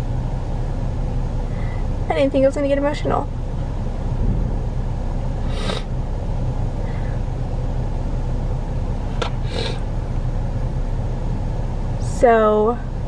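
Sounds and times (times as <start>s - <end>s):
low rumble inside car: 0.0s - 13.0s
woman sniffling: 5.5s - 5.9s.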